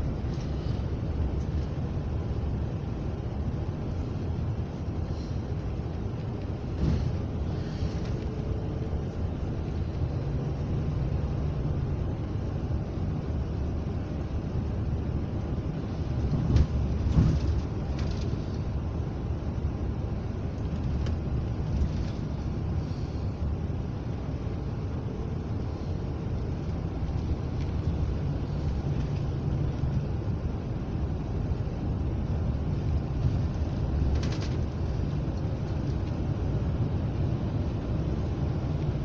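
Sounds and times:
bus engine and tyre rumble: 0:00.0 - 0:39.0
knocks and rattles from bumps: 0:16.3 - 0:18.4.

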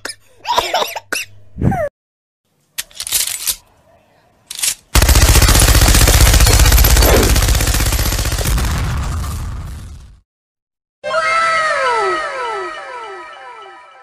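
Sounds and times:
machine-gun fire: 0:04.9 - 0:10.2.

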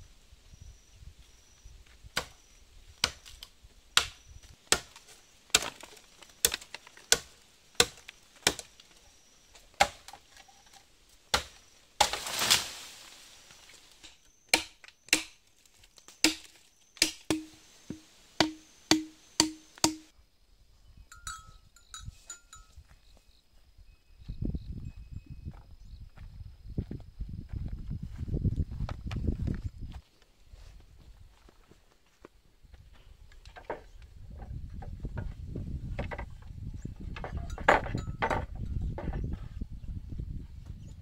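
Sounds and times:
machete chopping bamboo: 0:03.0 - 0:03.4, 0:04.0 - 0:08.7, 0:09.8 - 0:10.2, 0:11.3 - 0:12.7, 0:14.0 - 0:15.4, 0:16.1 - 0:20.1
bamboo crashing: 0:04.0 - 0:08.7, 0:09.8 - 0:10.2, 0:11.3 - 0:15.4, 0:16.0 - 0:20.1.

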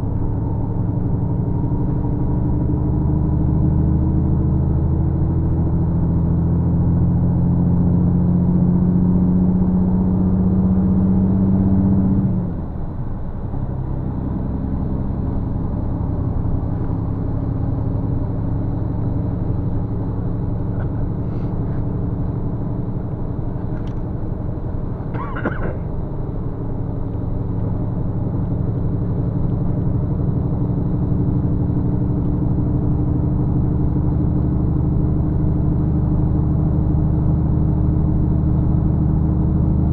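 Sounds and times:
bus engine running: 0:00.0 - 0:39.9
tyre and road noise: 0:25.0 - 0:26.0.

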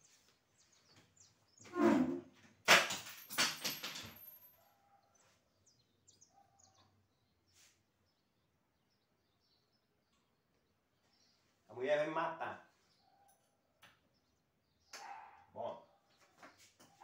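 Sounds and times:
wooden bed dragged across floor: 0:01.6 - 0:02.4.

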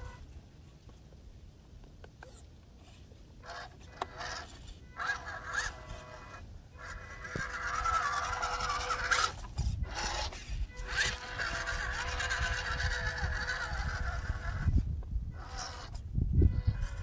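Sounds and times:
electric motor whining: 0:03.4 - 0:17.0.

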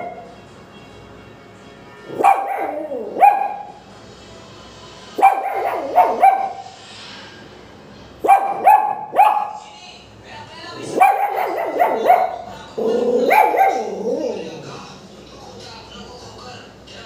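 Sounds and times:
small dog barking: 0:02.1 - 0:03.8, 0:05.2 - 0:06.7, 0:08.2 - 0:09.6, 0:10.8 - 0:14.4.

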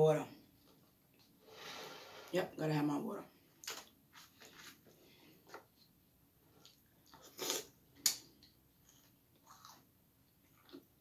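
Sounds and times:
person chewing cereal: 0:06.4 - 0:11.0.

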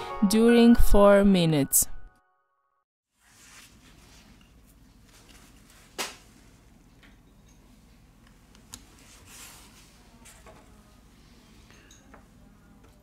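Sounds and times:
soft rustling of hands: 0:03.2 - 0:06.4.

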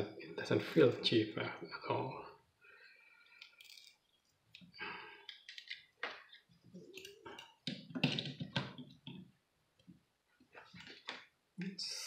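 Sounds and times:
clicks and knocks of handling: 0:04.5 - 0:09.3.

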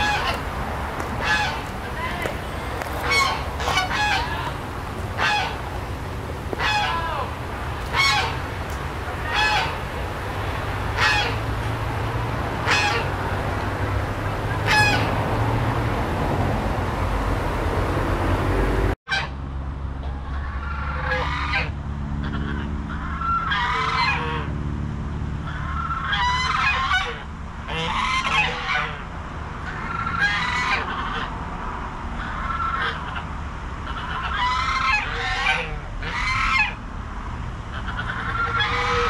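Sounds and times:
geese honking: 0:00.0 - 0:13.4, 0:14.5 - 0:15.2, 0:20.0 - 0:24.5, 0:25.4 - 0:29.0, 0:29.6 - 0:31.3, 0:32.2 - 0:36.8, 0:37.7 - 0:39.0.

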